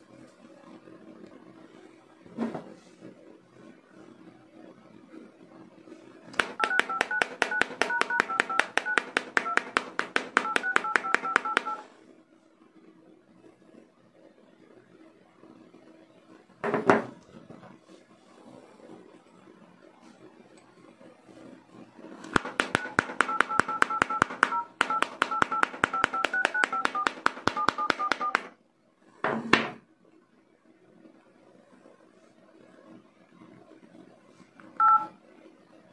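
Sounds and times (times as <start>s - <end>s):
keypad touch tone beeps: 6.4s - 11.9s, 22.4s - 28.5s, 34.8s - 35.1s.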